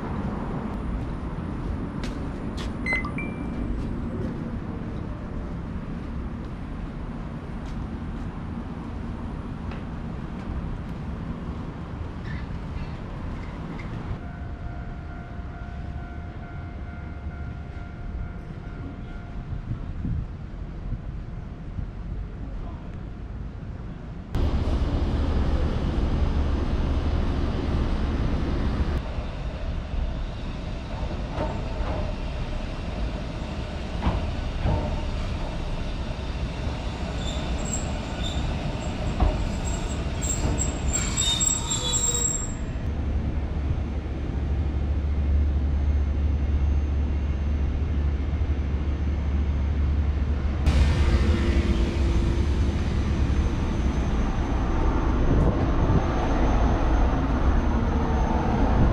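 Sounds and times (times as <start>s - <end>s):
train low rumble: 0.0s - 58.9s
train wheel squeal: 12.2s - 14.0s, 30.4s - 42.8s.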